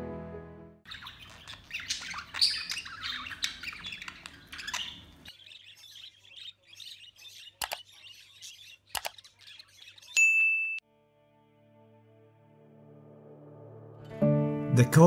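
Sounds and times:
budgerigars chirping and warbling: 0.9s - 10.2s
sharp clicks: 7.6s - 7.9s, 8.9s - 9.2s.

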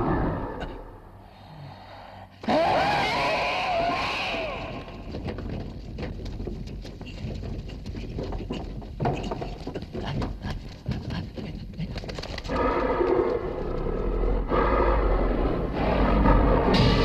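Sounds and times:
light clicks and patter: 5.0s - 14.0s.

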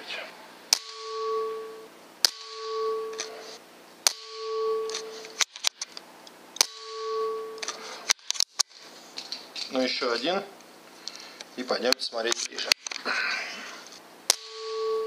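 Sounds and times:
air rifle shots: 0.7s - 1.2s, 2.2s - 5.8s, 6.6s - 7.0s, 14.3s - 14.8s
metallic ringing tone: 0.8s - 5.4s, 6.6s - 8.0s, 14.3s - 15.0s.

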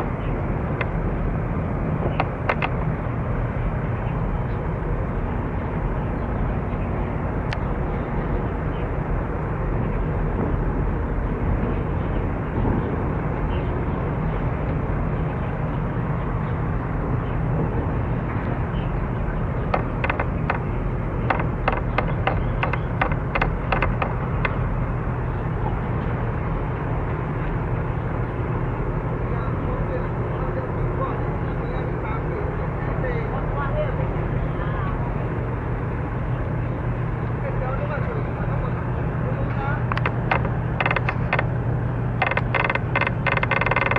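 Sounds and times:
ship engine rumble: 0.0s - 43.9s
sharp clicks: 2.2s - 2.8s, 19.7s - 24.6s, 39.9s - 41.5s, 42.2s - 43.9s.

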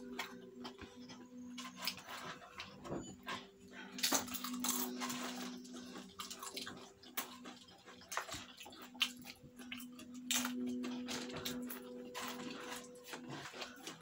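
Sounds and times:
plastic snack bags rustling: 0.0s - 14.0s
chips crackling being eaten: 3.8s - 14.0s.

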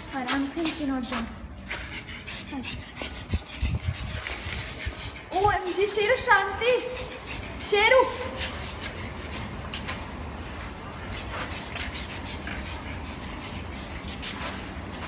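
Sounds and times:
paws and cart clicking on floor: 0.0s - 15.0s.

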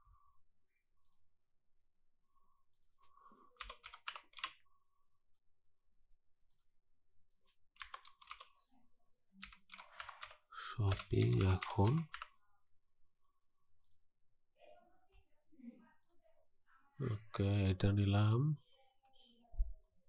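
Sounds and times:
faint keyboard keystrokes: 3.6s - 4.6s, 7.8s - 8.5s.

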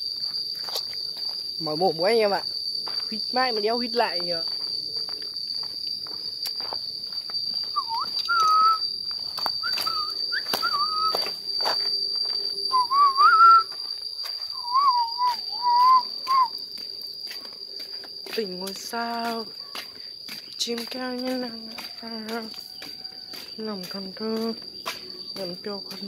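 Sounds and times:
high insect drone: 0.0s - 26.0s
man whistling a tune: 7.6s - 11.4s, 12.6s - 13.8s, 14.5s - 16.6s.

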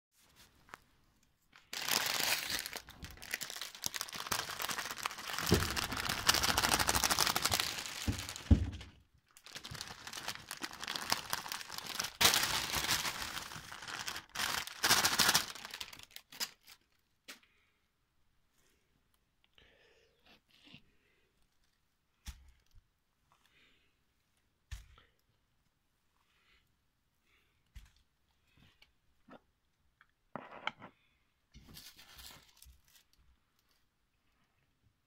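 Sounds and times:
straw and branches rustling: 1.7s - 8.8s
dull thumps: 7.2s - 9.0s.

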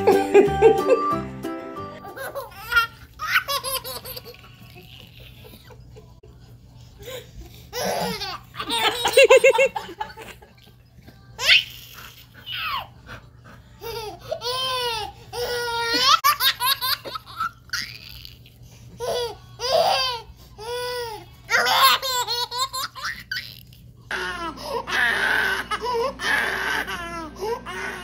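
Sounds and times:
baby laughing: 2.0s - 6.2s, 7.7s - 10.7s, 13.8s - 28.0s.

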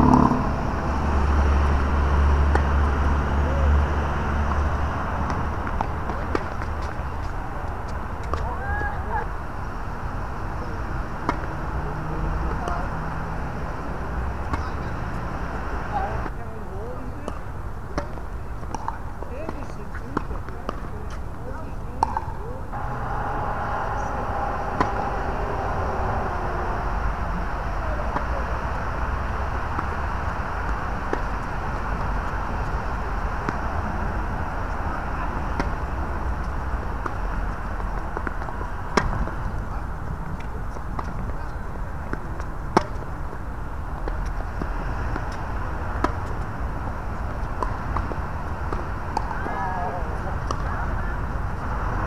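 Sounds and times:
low outdoor rumble: 0.0s - 52.0s
tennis ball hits: 2.4s - 3.1s, 5.2s - 8.6s, 11.1s - 11.7s, 17.2s - 21.3s, 21.9s - 37.2s, 37.8s - 39.6s, 40.7s - 41.4s, 42.0s - 43.2s, 44.0s - 46.6s, 47.2s - 49.7s, 50.3s - 50.9s
ball bounces: 2.5s - 2.8s, 17.2s - 21.2s, 21.9s - 22.3s
tennis racket striking ball: 22.0s - 33.7s.

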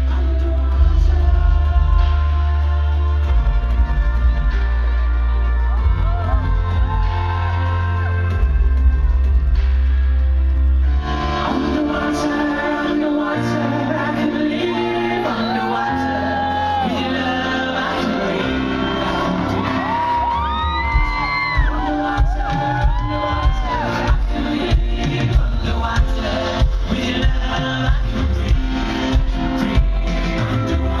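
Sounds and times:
man singing into microphone: 0.0s - 8.4s, 11.4s - 31.0s
steady drum beat: 0.0s - 10.1s, 20.6s - 31.0s
bass line: 0.0s - 31.0s
audience shouting: 18.4s - 24.2s.

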